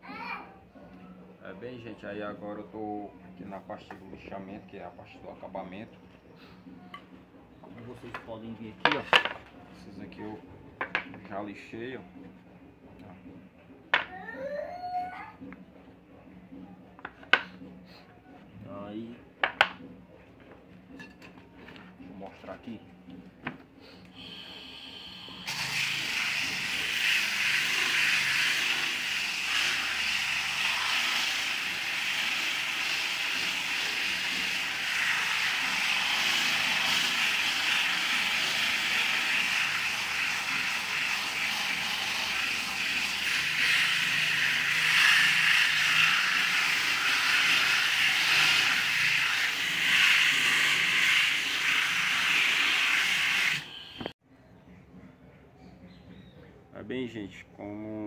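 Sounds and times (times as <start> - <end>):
electric disc sander on wood: 24.2 - 54.1.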